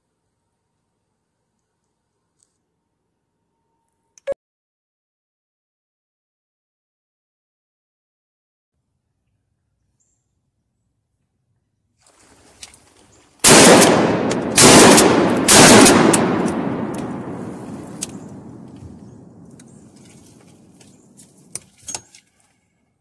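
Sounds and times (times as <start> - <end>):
shotgun shots with echo: 13.4 - 19.4.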